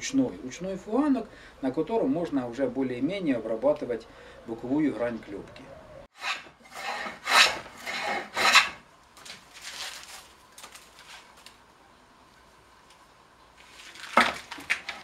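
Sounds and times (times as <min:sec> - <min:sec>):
hand plane scraping wood: 0:06.2 - 0:08.8.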